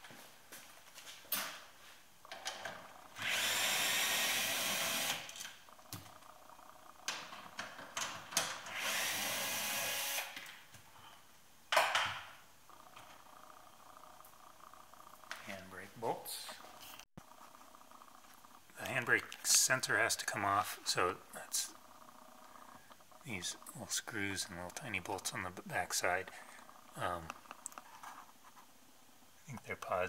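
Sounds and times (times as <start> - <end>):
cordless drill running: 3.1 - 5.3, 8.7 - 10.4.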